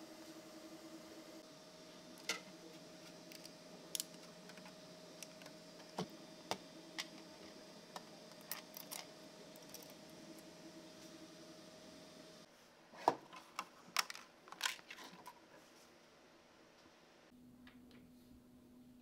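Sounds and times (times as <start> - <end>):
steady hum with faint whine: 0.0 - 19.0.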